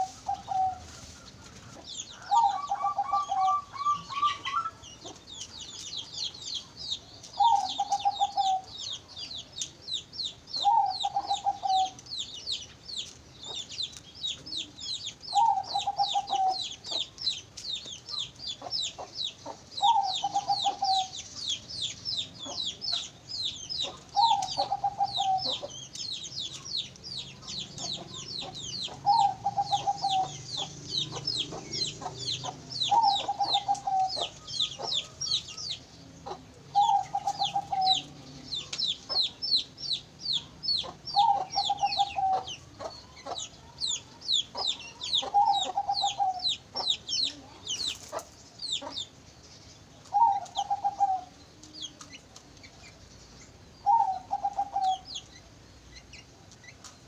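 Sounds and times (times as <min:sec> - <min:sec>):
dove cooing trill: 0:00.0 - 0:01.2, 0:02.1 - 0:04.8, 0:07.4 - 0:08.8, 0:10.6 - 0:12.0, 0:14.5 - 0:17.1, 0:19.8 - 0:21.2, 0:23.8 - 0:25.8, 0:27.3 - 0:35.5, 0:36.2 - 0:39.6, 0:40.8 - 0:49.0, 0:50.1 - 0:51.4, 0:53.8 - 0:55.1.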